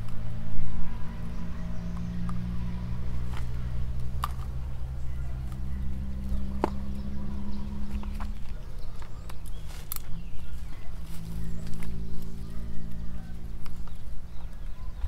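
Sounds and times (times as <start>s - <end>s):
motor humming steadily: 0.0s - 15.0s.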